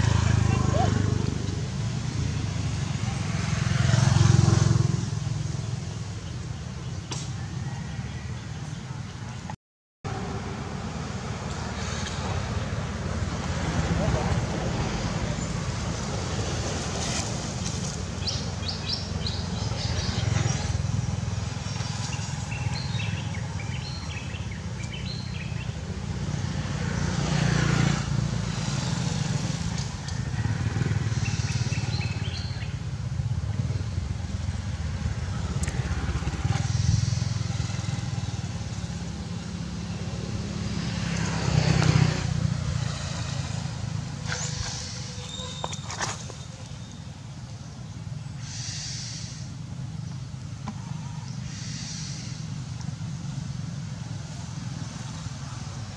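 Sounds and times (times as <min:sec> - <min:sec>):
bird chirps: 0:44.3 - 0:47.1.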